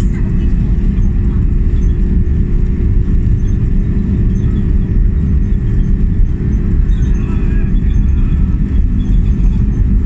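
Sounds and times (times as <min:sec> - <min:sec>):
low rumble of aircraft engines: 0:00.0 - 0:10.0.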